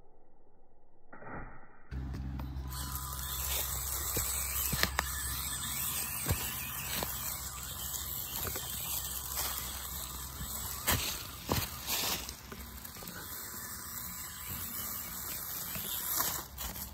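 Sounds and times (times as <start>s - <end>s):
steady low hum: 1.8s - 16.9s
leaves crackling under tyres: 2.7s - 16.9s.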